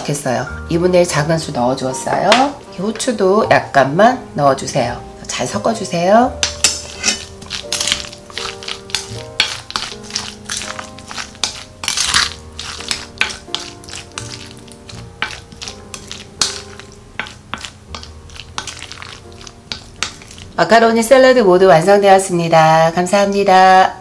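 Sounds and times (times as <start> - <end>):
background music: 0.0 - 23.8
wet mixing of pasta salad: 6.4 - 21.1
spatula scraping glass bowl: 6.5 - 20.6.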